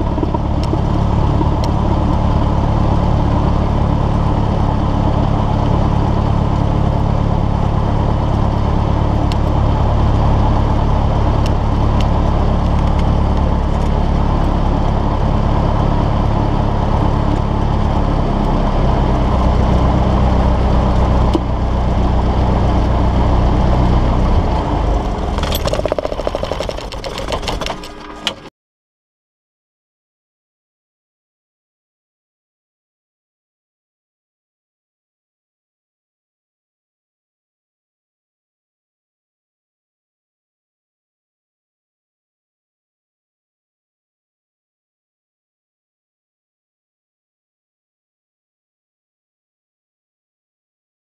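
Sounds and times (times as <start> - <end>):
piston aircraft engine idling: 0.0 - 28.5
propeller winding down: 0.0 - 28.5.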